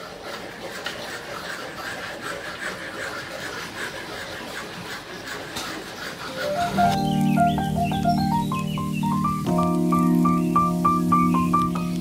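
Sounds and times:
hand saw cutting wood: 0:00.0 - 0:07.2.

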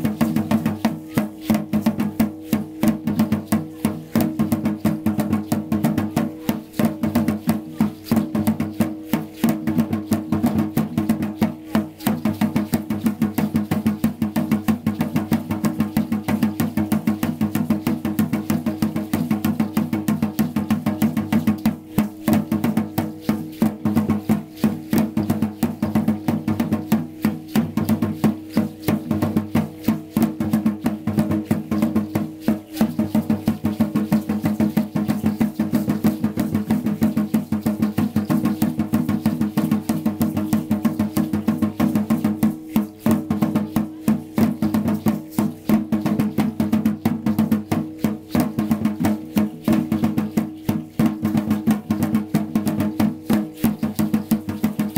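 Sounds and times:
clacking percussion: 0:00.0 - 0:54.9
drums beating fast rhythm: 0:00.0 - 0:54.9.

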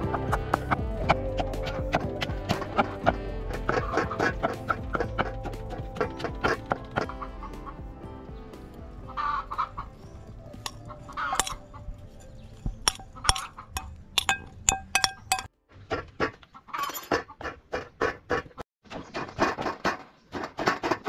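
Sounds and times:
hen clucking: 0:09.1 - 0:14.0, 0:16.2 - 0:18.6.

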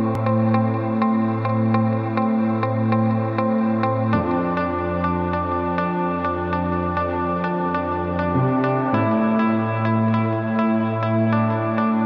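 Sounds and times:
calm ambient music: 0:00.0 - 0:12.0.

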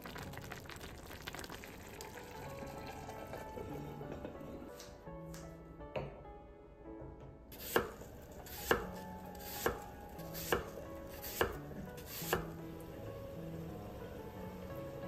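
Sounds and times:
knife chopping apple on wood: 0:07.6 - 0:12.5.

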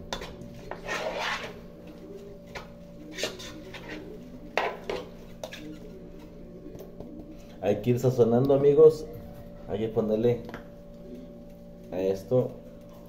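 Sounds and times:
steady low hum: 0:00.0 - 0:13.0
utensil scraping frying pan: 0:00.1 - 0:01.7, 0:02.5 - 0:06.0.

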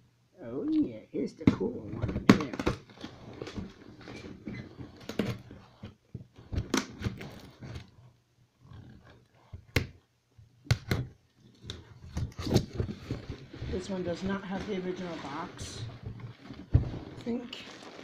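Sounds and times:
cardboard box rustling and scraping: 0:11.8 - 0:18.0.

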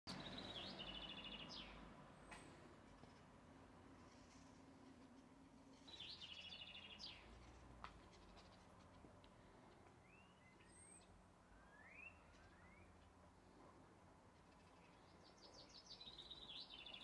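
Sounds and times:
bird whistles: 0:11.6 - 0:12.9.

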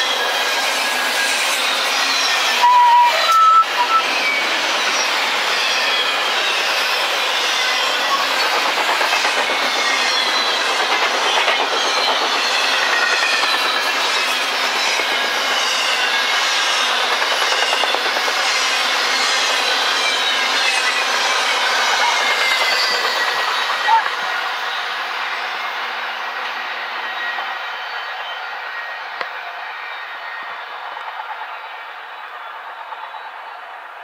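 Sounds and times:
train wheels clattering: 0:07.3 - 0:24.2.

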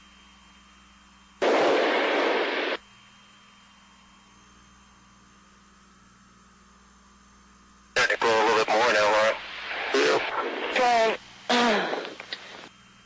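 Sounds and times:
faint steady hum and hiss: 0:00.0 - 0:13.0
loud static hiss burst: 0:01.4 - 0:02.8, 0:08.0 - 0:12.7.

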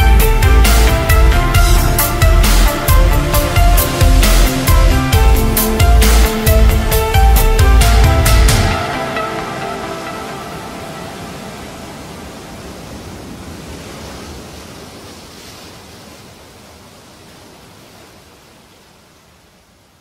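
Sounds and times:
steady rushing noise: 0:00.0 - 0:15.7.

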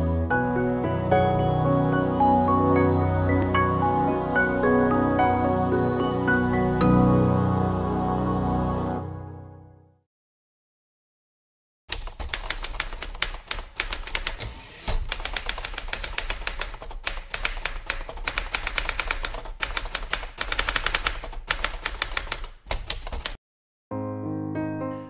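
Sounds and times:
typewriter typing: 0:11.9 - 0:23.4.

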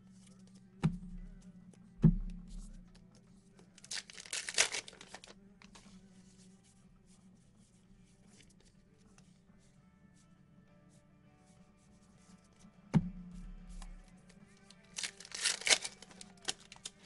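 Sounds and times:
dull thumps on tabletop: 0:02.0 - 0:02.8, 0:12.9 - 0:14.0
card packaging ripping open: 0:03.8 - 0:05.4, 0:14.9 - 0:17.0.

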